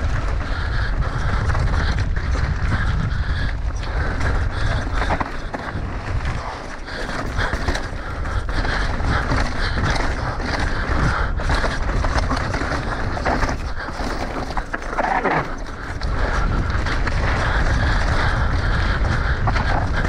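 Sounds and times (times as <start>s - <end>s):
bike rattling and knocking: 0.0s - 20.0s
wind rush on microphone: 0.0s - 20.0s
tyres crunching over stones: 3.8s - 18.2s.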